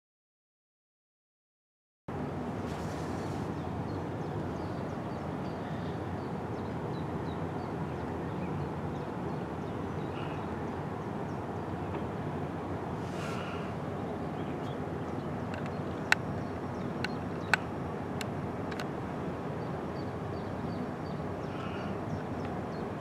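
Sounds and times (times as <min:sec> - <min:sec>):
small birds chirping: 0:02.8 - 0:12.0, 0:13.0 - 0:18.9, 0:19.6 - 0:23.0
brief airy hiss: 0:13.0 - 0:13.7.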